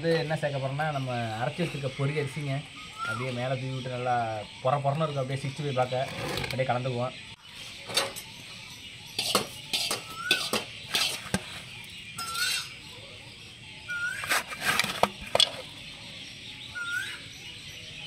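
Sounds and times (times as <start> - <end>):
food pieces clinking against bowl: 9.2 - 11.3.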